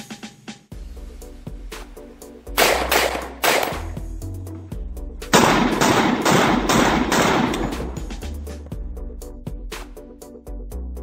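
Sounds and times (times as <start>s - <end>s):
rifle shots: 2.6s - 4.0s, 5.3s - 8.0s.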